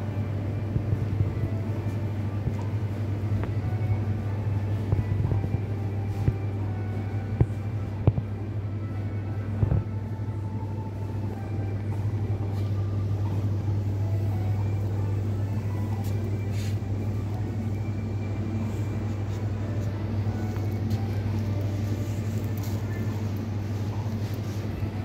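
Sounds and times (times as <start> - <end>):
low hum of building machinery: 0.0 - 25.0
soft background store sounds: 0.0 - 25.0.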